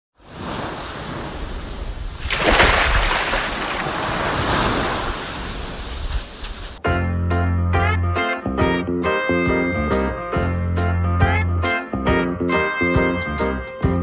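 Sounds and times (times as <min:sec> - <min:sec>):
hiss of surf: 0:00.2 - 0:06.8
ocean wave breaking: 0:00.2 - 0:06.8.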